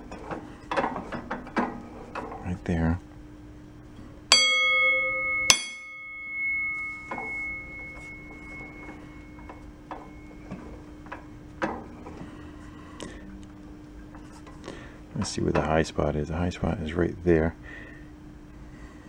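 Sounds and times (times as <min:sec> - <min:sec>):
low hum: 0:03.6 - 0:14.3
struck metal sprocket ringing: 0:04.3 - 0:10.8.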